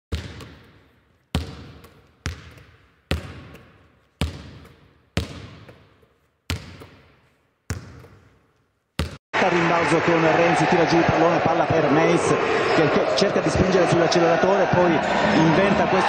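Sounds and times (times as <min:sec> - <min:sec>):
basketball bouncing with echo: 0:00.1 - 0:09.2.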